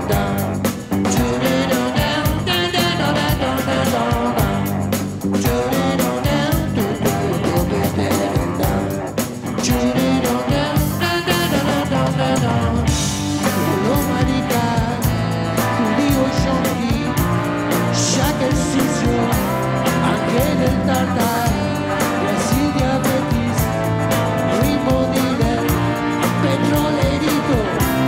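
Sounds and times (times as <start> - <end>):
live rock band playing: 0.0 - 28.0
horn section playing: 13.2 - 28.0.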